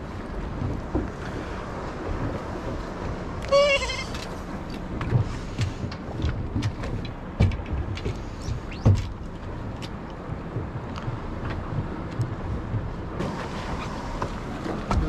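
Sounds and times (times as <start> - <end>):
water slapping against boat hull: 0.0 - 15.0
short wavering bleat-like call: 3.5 - 4.2.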